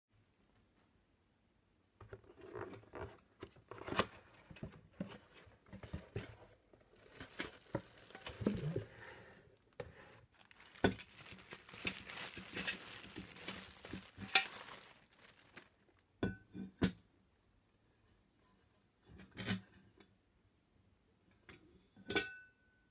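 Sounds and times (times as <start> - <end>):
plastic bag crinkling: 5.8 - 16.0
cardboard box opened: 7.0 - 9.0, 10.3 - 15.8.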